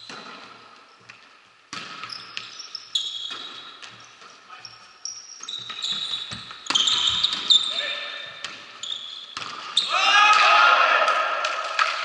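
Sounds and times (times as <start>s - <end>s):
shoes squeaking on court floor: 0.0s - 10.0s
volleyball hits: 1.7s - 2.5s, 8.4s - 12.0s.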